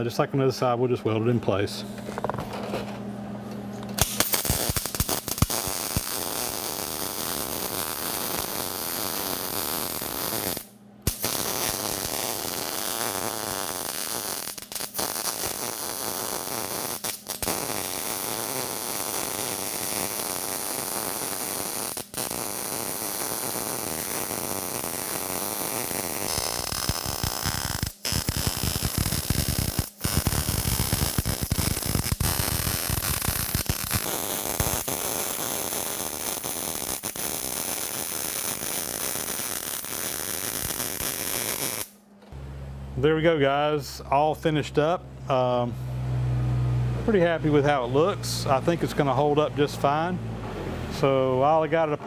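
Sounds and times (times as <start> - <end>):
welding arc crackling hiss: 4.0 - 42.0.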